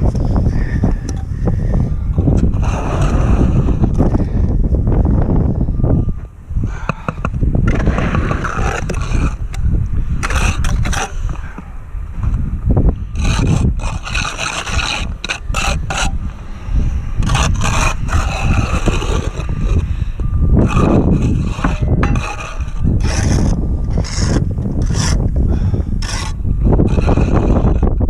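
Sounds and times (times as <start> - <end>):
steady low rumble: 0.0 - 28.0
trowel scraping wet mortar: 7.8 - 9.5, 10.2 - 11.4, 13.1 - 16.2, 17.2 - 19.9, 20.6 - 25.3, 26.0 - 28.0.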